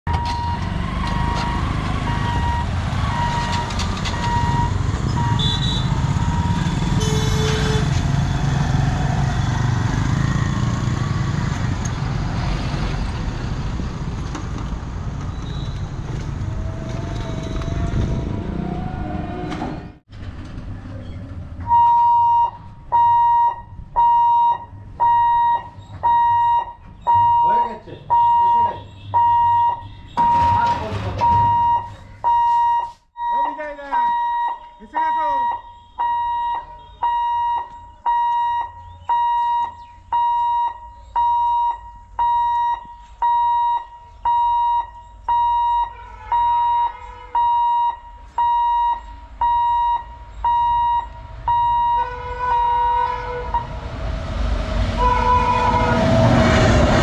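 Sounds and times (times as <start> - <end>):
level crossing warning beeps: 0.1 - 6.7, 21.7 - 30.6, 31.2 - 52.0.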